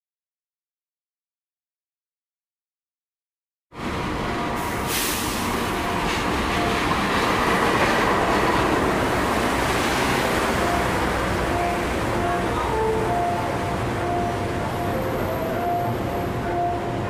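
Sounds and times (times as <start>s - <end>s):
passenger train rumbling past: 3.8s - 17.0s
brief hissing rush: 4.8s - 5.6s.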